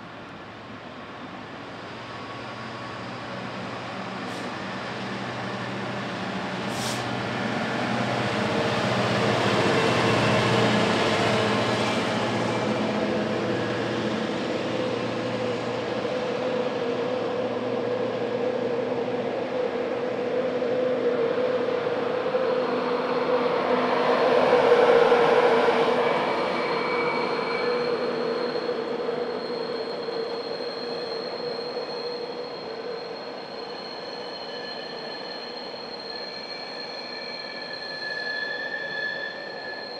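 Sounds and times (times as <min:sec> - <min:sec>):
diesel locomotive engine droning: 0:00.0 - 0:39.9
high-pitched wheel squeal: 0:22.2 - 0:39.9.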